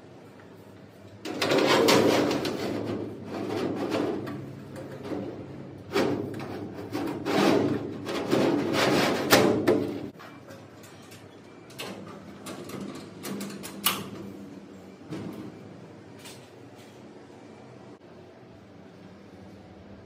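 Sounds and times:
metal shelf scraping and clanking: 1.2s - 11.0s.

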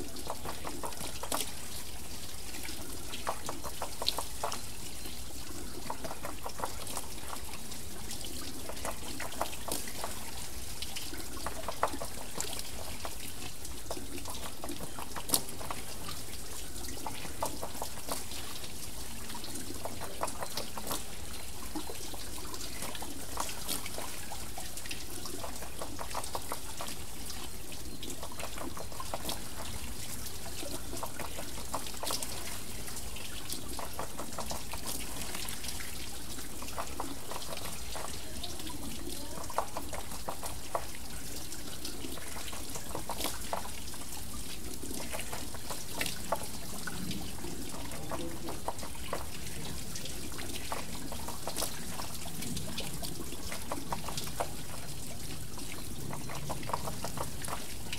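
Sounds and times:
small drips and splashes: 0.0s - 57.9s
water trickling off water wheel: 0.0s - 57.9s.

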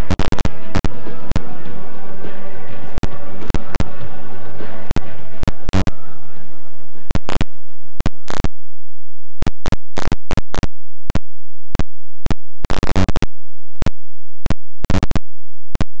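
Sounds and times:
tape crackles and pops: 0.0s - 1.5s, 7.1s - 16.0s.

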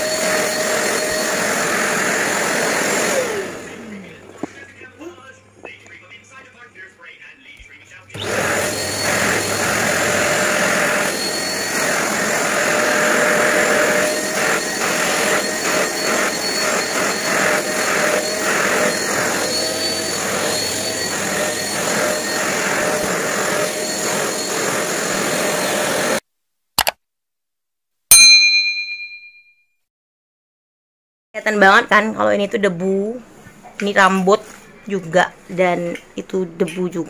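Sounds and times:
handheld vacuum cleaner whine: 0.0s - 4.6s, 8.2s - 26.2s.

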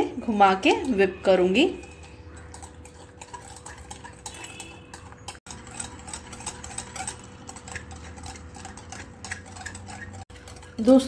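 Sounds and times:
whisk clicking against glass bowl: 0.3s - 11.0s.

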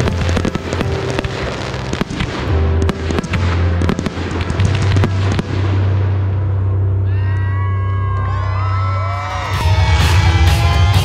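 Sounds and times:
fireworks popping and banging: 0.0s - 6.0s
music with heavy bass: 0.0s - 11.0s.

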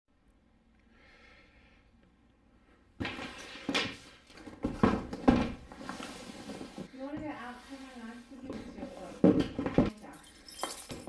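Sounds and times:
cardboard box rubbing: 5.6s - 9.2s.

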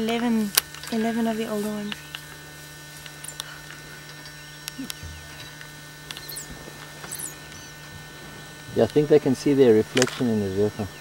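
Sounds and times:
low electrical hum: 0.0s - 11.0s
high-pitched chirps: 4.3s - 8.0s.

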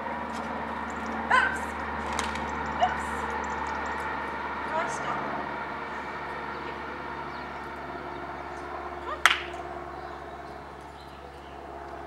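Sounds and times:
faint background hum: 0.0s - 12.0s.

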